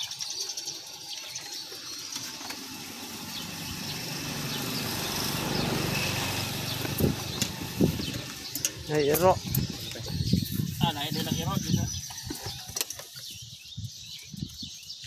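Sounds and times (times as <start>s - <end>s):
vehicle engine running: 1.5s - 10.2s.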